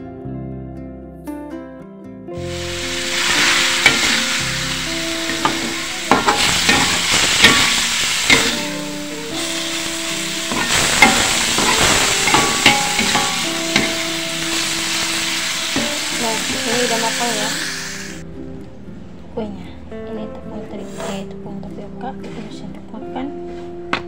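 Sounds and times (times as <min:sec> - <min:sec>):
vegetables sizzling in hot oil: 0:02.4 - 0:18.2
metal spatula scraping a wok: 0:02.5 - 0:18.2.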